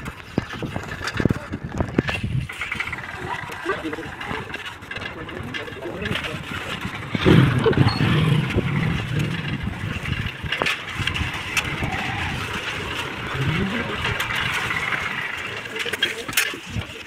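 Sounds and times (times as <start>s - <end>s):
bicycle riding on rough lane: 0.0s - 17.0s
motorcycle engine running: 0.0s - 17.0s.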